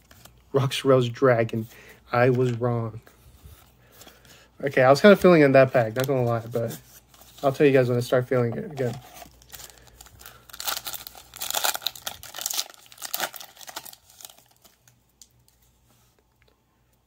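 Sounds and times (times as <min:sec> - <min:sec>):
foil pack crinkling and tearing: 0:08.9 - 0:15.3.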